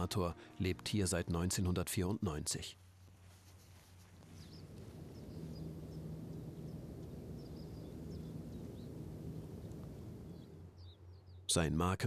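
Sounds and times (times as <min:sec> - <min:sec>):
small birds chirping: 0:03.6 - 0:11.7
ship engines droning: 0:04.2 - 0:11.2.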